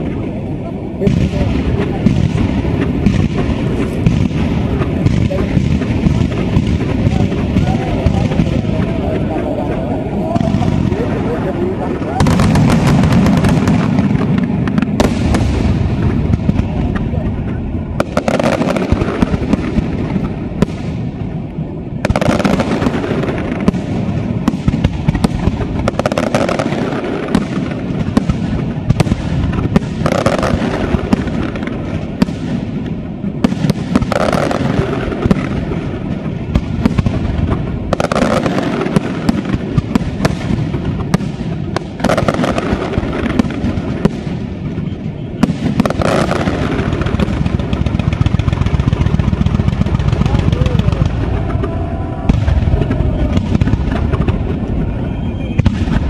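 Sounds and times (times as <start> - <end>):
firework bursts and crackles: 0.0 - 56.0.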